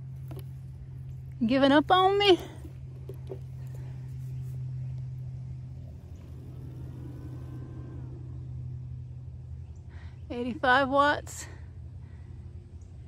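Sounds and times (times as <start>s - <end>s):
low hum: 0.0s - 13.0s
faint rising and falling tone: 2.6s - 9.9s.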